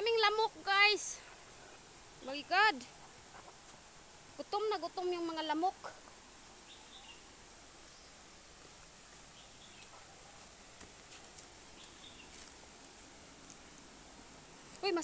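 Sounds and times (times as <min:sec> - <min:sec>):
birds chirping: 0:05.4 - 0:08.4, 0:09.0 - 0:10.5, 0:11.6 - 0:12.6.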